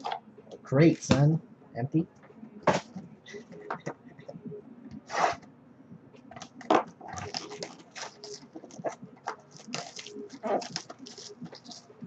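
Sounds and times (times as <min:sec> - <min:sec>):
wrapper crinkling and crackling: 0:06.4 - 0:12.0
cards being handled: 0:07.2 - 0:11.9.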